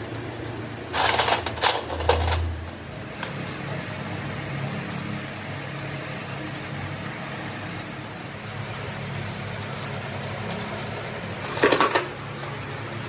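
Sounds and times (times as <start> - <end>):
metal parts clinking in liquid: 0.0 - 3.6, 8.0 - 12.1.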